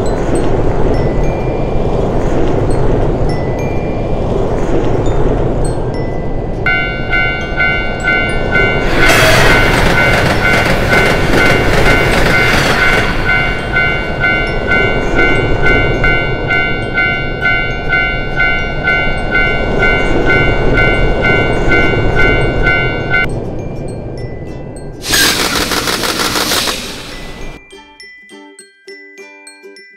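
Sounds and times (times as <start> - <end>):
tram passing: 0.0 - 27.7
level crossing alarm dings: 6.7 - 23.3.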